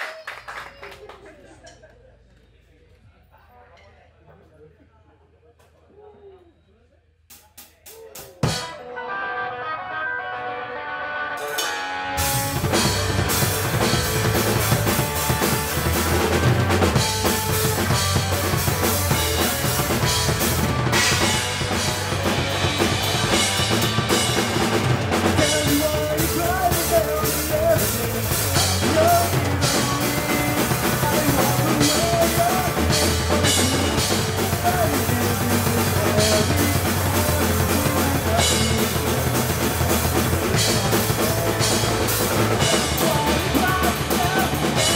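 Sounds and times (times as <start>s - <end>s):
drum kit: 7.3s - 8.9s, 11.4s - 44.9s
bass guitar: 8.4s - 44.9s
electric guitar: 8.4s - 44.9s.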